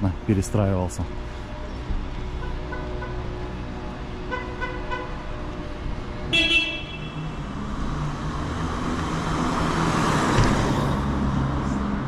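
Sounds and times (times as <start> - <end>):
street traffic noise: 0.0 - 12.0
car horn toot: 6.3 - 7.2.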